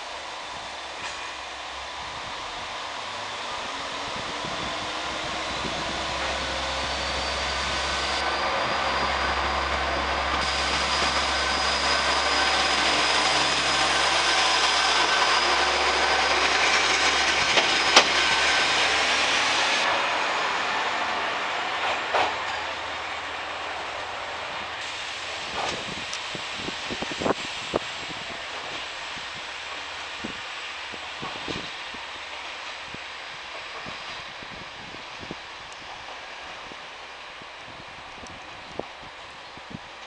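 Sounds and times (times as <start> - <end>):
diesel railcar engine rumble: 0.0 - 40.0
train wheel noise: 0.0 - 40.0
high whine rising in pitch: 3.4 - 19.9.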